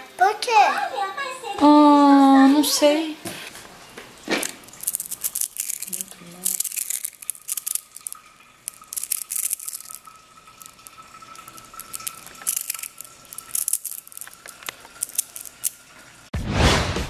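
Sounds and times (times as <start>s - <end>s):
magnet balls clicking: 4.4s - 15.8s.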